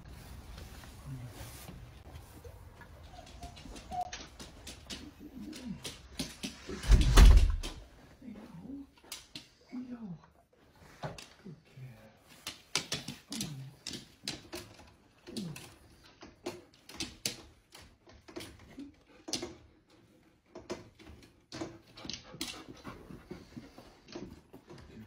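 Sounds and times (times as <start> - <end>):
dog whining and whimpering: 2.4 - 5.9.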